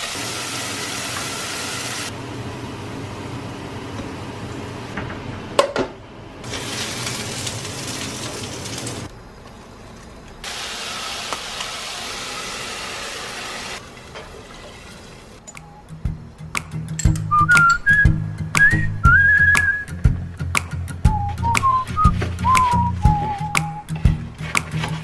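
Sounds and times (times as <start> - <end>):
oil sizzling in a frying pan: 0.0 - 2.1.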